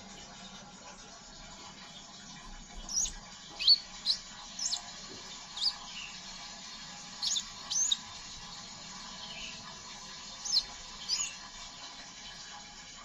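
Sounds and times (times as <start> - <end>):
bird chirping high-pitched: 2.9 - 6.2, 7.2 - 8.1, 9.2 - 9.7, 10.3 - 11.4.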